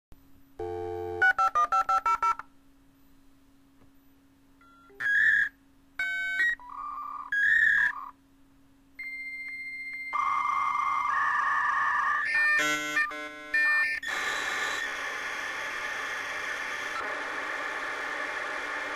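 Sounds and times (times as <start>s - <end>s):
dial tone: 0.6s - 2.4s.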